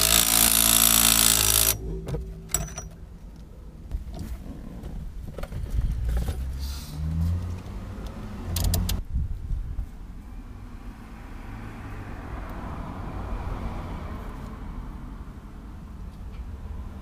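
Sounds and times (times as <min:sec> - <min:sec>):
cordless drill spinning: 0:00.0 - 0:01.8
ratchet wrench clicking: 0:00.0 - 0:01.8
hand tools clicking and clinking: 0:02.5 - 0:03.0.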